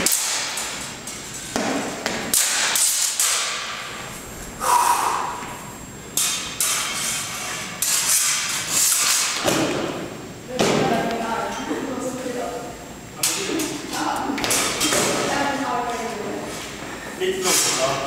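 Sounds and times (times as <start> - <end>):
steel sabres clashing: 0.0 - 3.8, 6.2 - 9.6.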